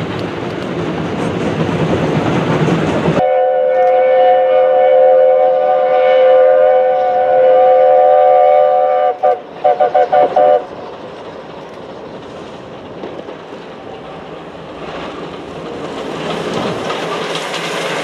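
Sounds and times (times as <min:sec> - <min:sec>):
train wheels rumbling on rail: 0:00.0 - 0:18.0
steam locomotive chime whistle: 0:03.2 - 0:10.7.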